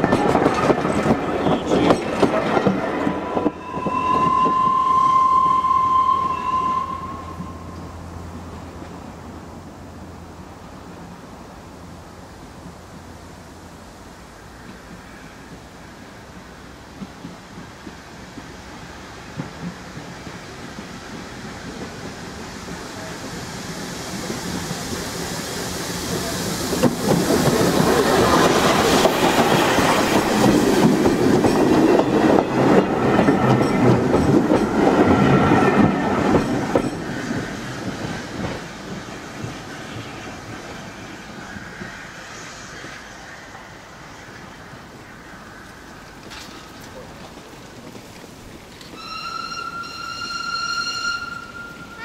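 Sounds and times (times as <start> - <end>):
steam train passing: 0.0 - 52.0
wheels clattering over rail joints: 46.0 - 49.1.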